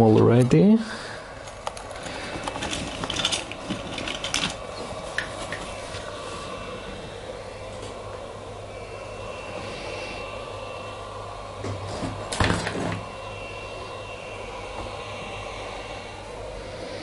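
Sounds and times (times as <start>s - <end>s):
heat gun blowing hum: 0.0s - 17.0s.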